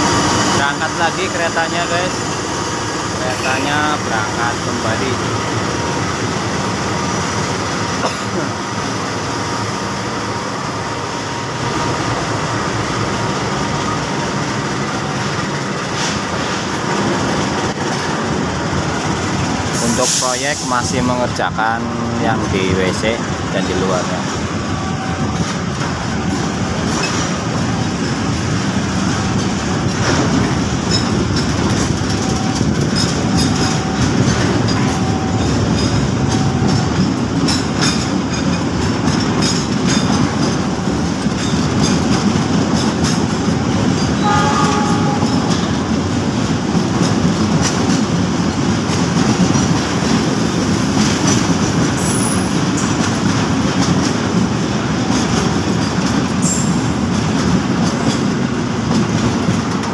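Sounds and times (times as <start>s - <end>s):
freight train rumbling past: 0.0s - 59.9s
wheels clicking over rail joints: 25.4s - 50.3s, 50.9s - 59.9s.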